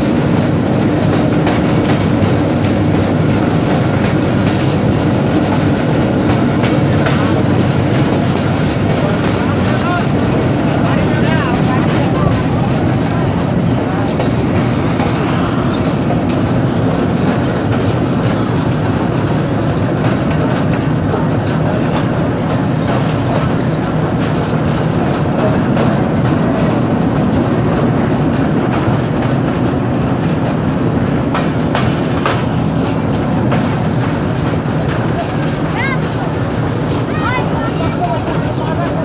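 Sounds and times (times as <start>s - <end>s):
sharp train clacks: 0.0s - 39.0s
train wheels rumbling and rattling: 0.0s - 39.0s.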